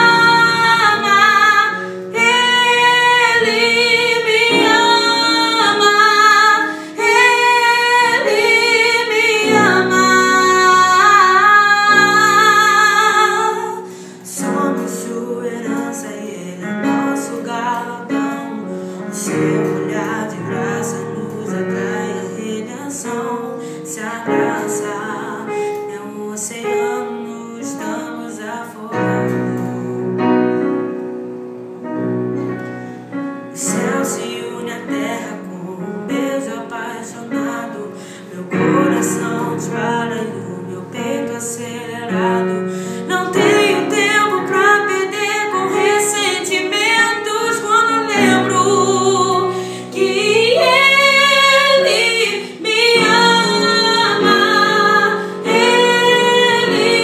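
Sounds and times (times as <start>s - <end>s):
boy singing with vibrato: 0.0s - 18.6s, 33.6s - 57.0s
keyboard chords and melody: 0.0s - 57.0s.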